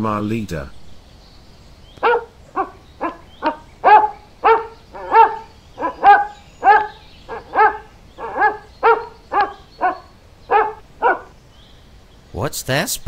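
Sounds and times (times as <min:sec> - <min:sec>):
dog barking: 0:02.0 - 0:11.3.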